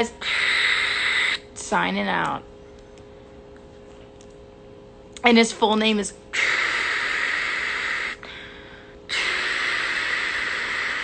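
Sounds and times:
woman making hissing noise: 0.2 - 1.5, 6.4 - 8.3, 9.1 - 11.0.

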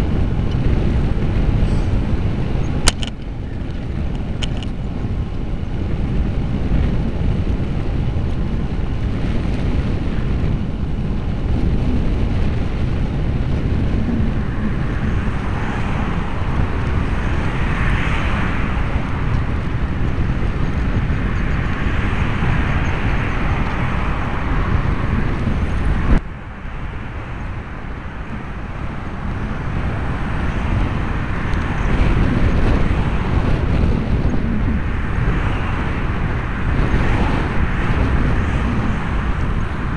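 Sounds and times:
car traffic passing: 0.0 - 39.9
wind noise on microphone: 0.0 - 39.9
sharp click: 2.8 - 3.3.

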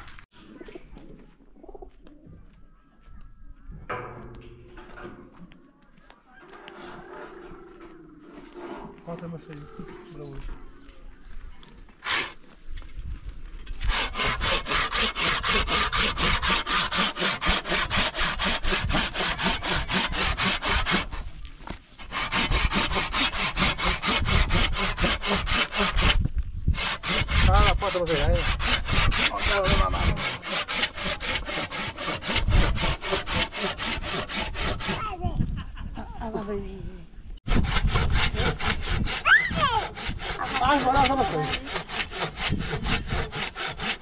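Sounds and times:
hand saw cutting: 12.0 - 12.4, 13.7 - 35.2, 37.5 - 44.0.

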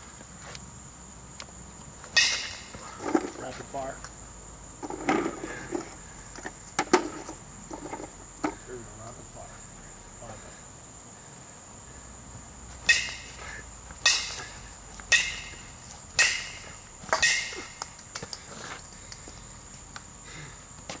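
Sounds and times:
baseball bat hitting balls: 2.1 - 3.0, 12.8 - 18.4.

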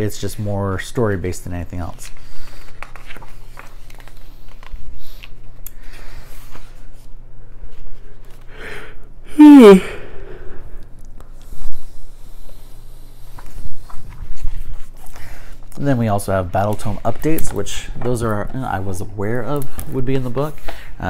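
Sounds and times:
book pages turning: 1.7 - 8.5, 13.2 - 20.8
man sneezing: 9.3 - 10.1.

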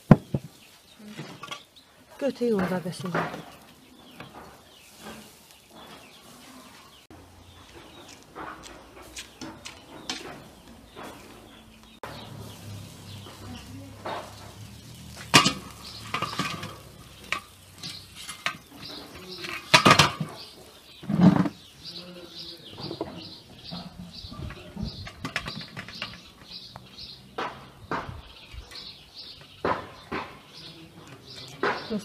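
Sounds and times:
wire grill basket clattering on metal: 7.8 - 20.6
tongs and fork scraping wires: 13.9 - 19.8.

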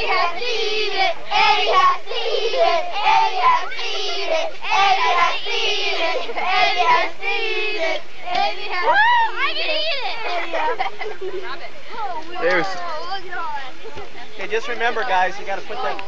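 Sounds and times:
children singing together: 0.0 - 10.9.

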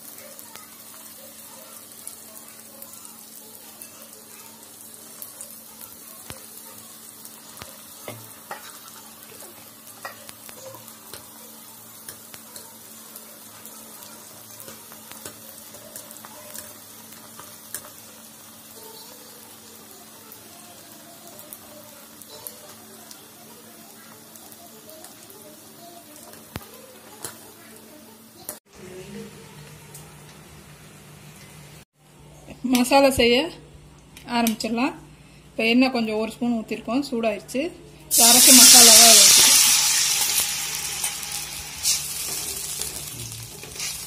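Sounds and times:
puris sizzling in hot oil: 0.0 - 31.9, 38.0 - 44.0
skimmer stirring in oil: 38.2 - 44.0.

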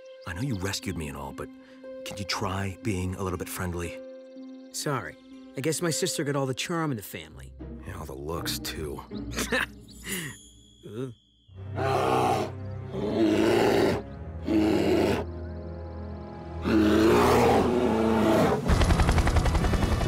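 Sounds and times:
background music: 0.0 - 20.0
cartoon bear roaring and growling: 11.8 - 15.3, 16.6 - 18.7
helicopter rotor chopping: 18.6 - 20.0.

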